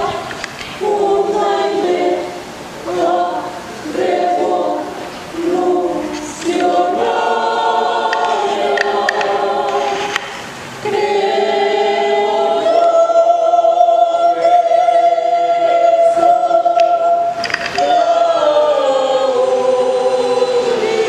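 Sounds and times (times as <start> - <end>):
mixed choir singing a carol: 0.0 - 21.0.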